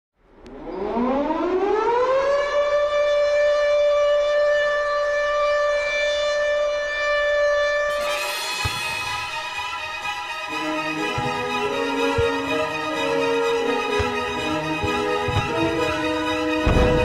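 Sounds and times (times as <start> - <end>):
orchestral music: 7.9 - 17.0.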